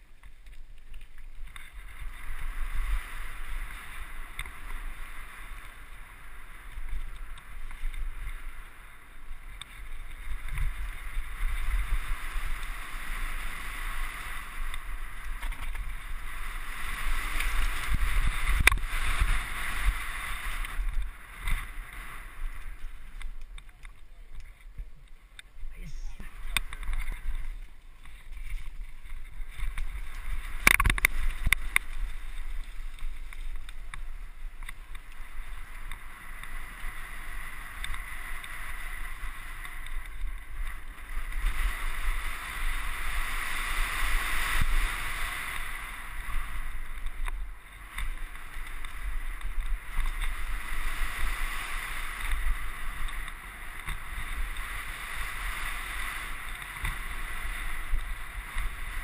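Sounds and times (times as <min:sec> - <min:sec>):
bike tyres on gravel: 0:00.0 - 0:59.0
wind on microphone: 0:01.3 - 0:59.0
bike rattle: 0:26.4 - 0:36.7.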